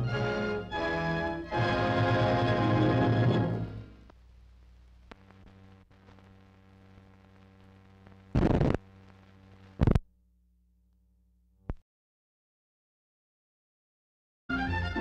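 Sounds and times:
low mains hum: 0.0 - 11.8
static noise bursts: 2.0 - 10.1
faint crackle: 4.0 - 11.8.

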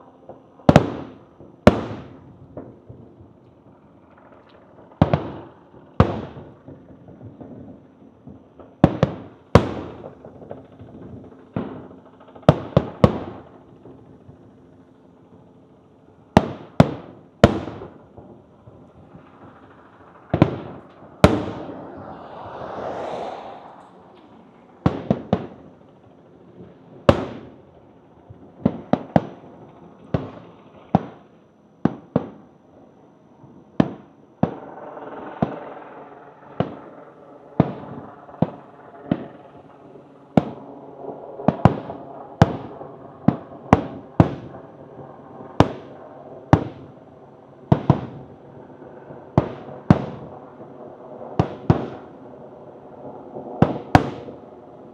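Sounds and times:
fireworks bursting with echo: 0.0 - 14.8, 15.5 - 32.5, 33.4 - 54.9
fireworks hissing and crackling: 16.3 - 31.3, 33.8 - 54.9.

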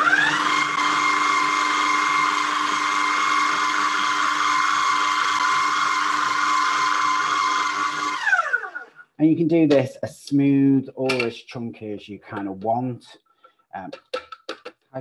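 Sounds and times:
food processor motor whining: 0.0 - 9.0.

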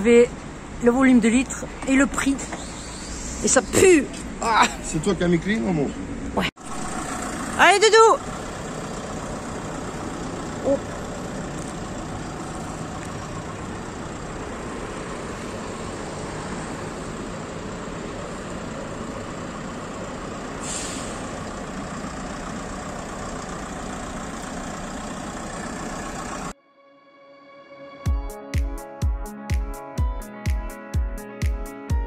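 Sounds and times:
diesel engine running: 0.0 - 26.5
brief hiss: 2.5 - 3.6, 20.6 - 21.4.

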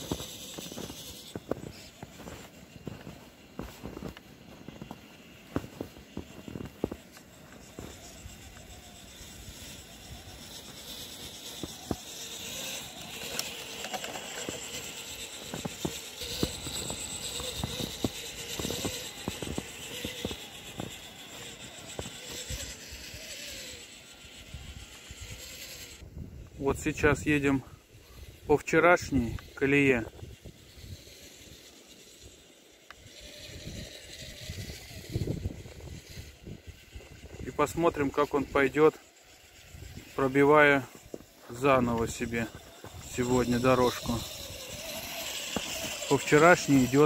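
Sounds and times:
footsteps crunching in wet snow: 0.0 - 8.1, 10.4 - 22.5
rc car motor whirring: 0.0 - 47.0.

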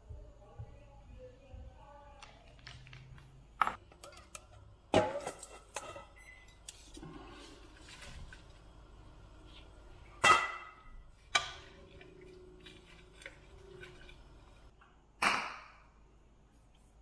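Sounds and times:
kitchen knocks and clatters: 2.2 - 6.2, 10.1 - 14.7.

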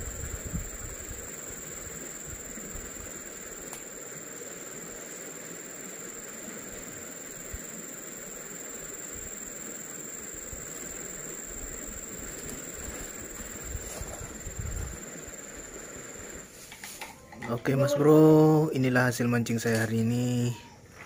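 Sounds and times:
high-pitched whine: 0.0 - 16.5
even hiss: 0.0 - 21.0.

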